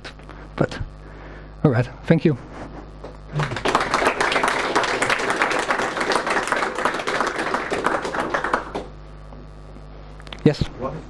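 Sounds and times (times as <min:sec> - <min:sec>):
low room hum: 0:00.0 - 0:11.0
audience applauding: 0:03.3 - 0:09.0.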